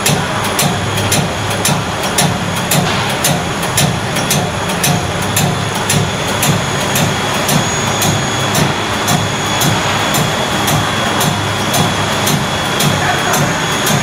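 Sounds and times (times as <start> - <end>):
machine humming: 0.0 - 14.0
sharp machine clicks: 0.0 - 14.0.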